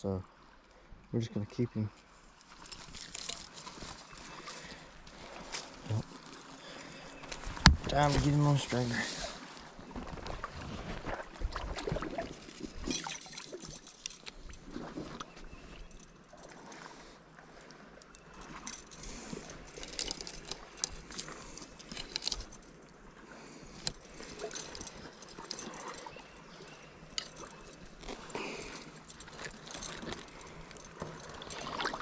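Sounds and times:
metal chain jingling and clinking: 2.6s - 4.0s, 12.8s - 14.6s, 24.0s - 32.0s.

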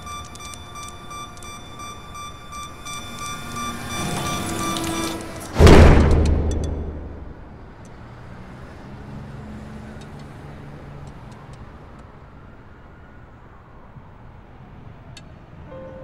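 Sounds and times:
low traffic-like rumble: 0.0s - 16.0s
loud boom: 5.4s - 7.8s.

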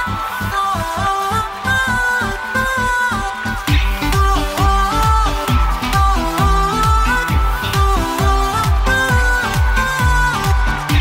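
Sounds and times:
electronic music melody: 0.0s - 11.0s
booming bass drum beat: 3.7s - 11.0s.

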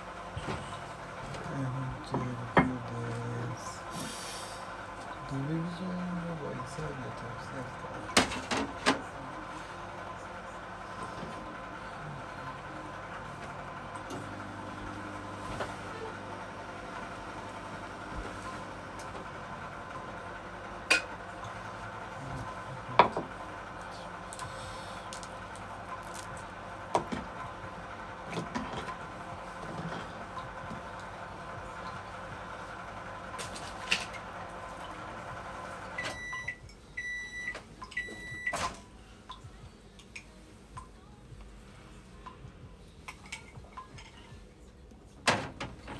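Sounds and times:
kitchen appliance humming: 0.0s - 45.9s
microwave beeps: 35.9s - 38.8s.

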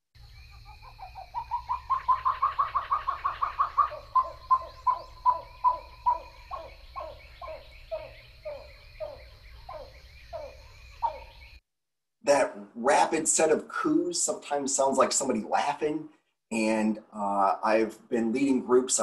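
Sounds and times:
grebe calling: 0.5s - 11.6s.

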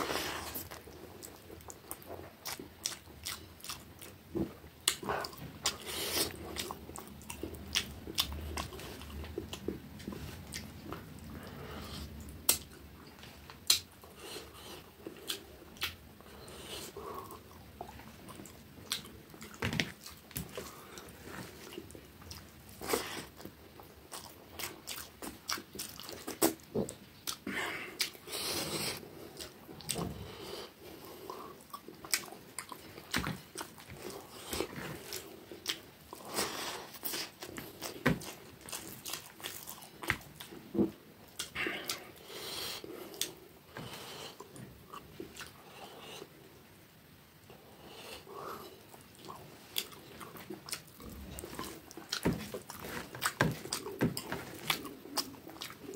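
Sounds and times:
wet chewing and lip smacking: 0.4s - 14.0s, 14.6s - 28.3s, 31.3s - 40.6s, 44.4s - 45.6s, 48.8s - 55.9s.

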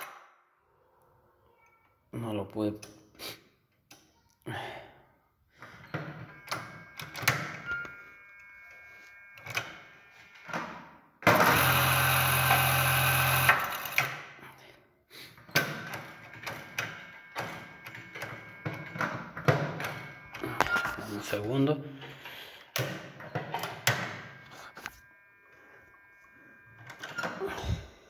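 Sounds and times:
sewing machine stitching: 11.3s - 14.2s.

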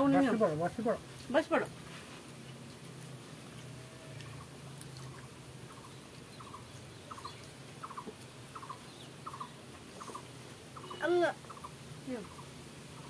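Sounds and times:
bird calling quick notes: 4.2s - 12.4s.

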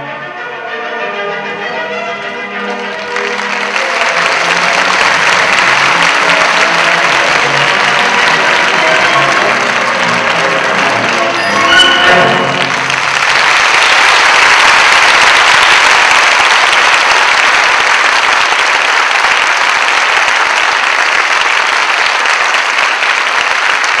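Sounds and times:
ballet music: 0.0s - 13.4s
audience applause: 2.2s - 24.0s.

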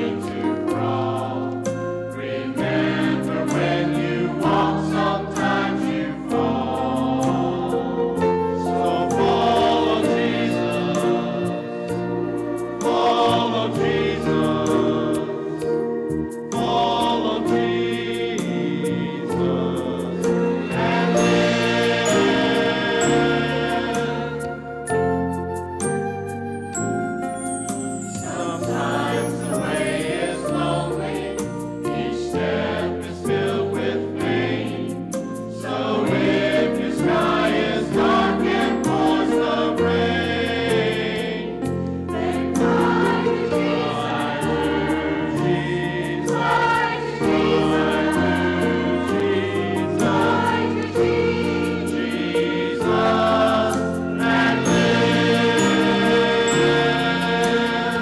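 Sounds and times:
choir singing: 0.0s - 58.0s.

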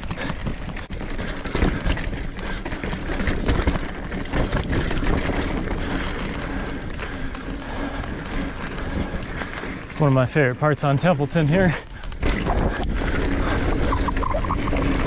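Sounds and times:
bike frame and chain rattling: 0.0s - 15.0s
tyres crunching over dirt and stones: 0.0s - 15.0s
wind buffeting microphone: 11.8s - 15.0s.

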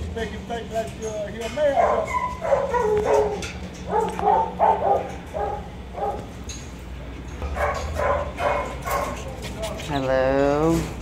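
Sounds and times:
dogs barking: 1.6s - 6.5s, 7.4s - 10.0s.

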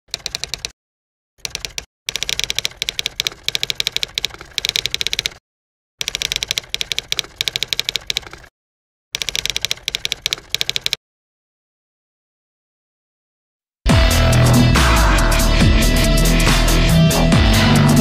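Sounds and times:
typewriter keys clacking: 0.1s - 0.7s, 1.4s - 5.4s, 6.0s - 8.5s, 9.2s - 11.0s.

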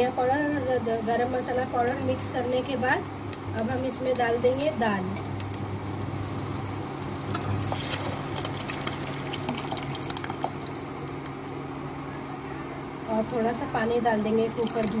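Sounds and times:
dal sizzling in a pot: 0.0s - 11.1s.

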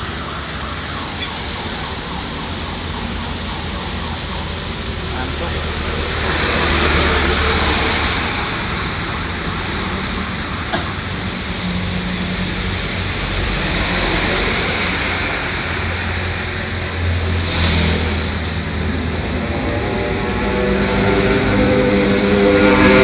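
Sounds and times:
bus engine drone: 0.0s - 23.0s
rain hissing: 0.0s - 23.0s
tyres hissing on wet asphalt: 0.0s - 23.0s
vehicle swishing past: 13.7s - 23.0s.

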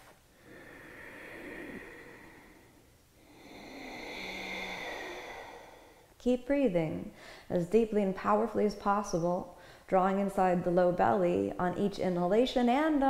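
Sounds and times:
deep hissing breaths: 0.3s - 6.2s.

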